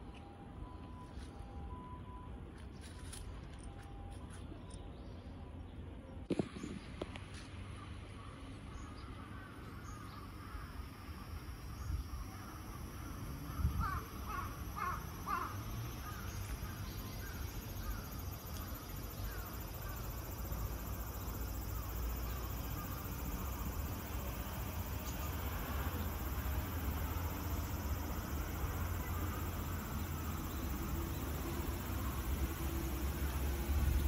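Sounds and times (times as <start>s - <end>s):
cicada high drone: 8.1s - 34.0s
crow cawing: 13.6s - 16.2s.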